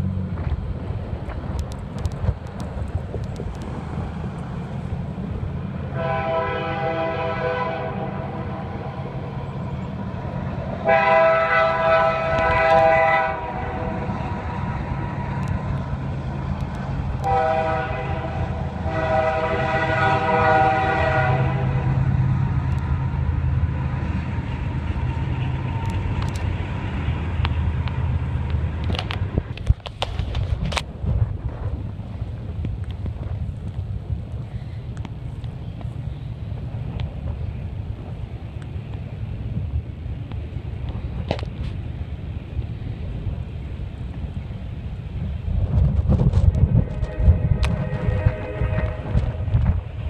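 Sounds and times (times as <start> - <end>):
low rumble of train: 0.0 - 50.0
train air horn blasts: 5.9 - 9.2, 10.8 - 15.5, 17.2 - 22.1, 46.7 - 49.7.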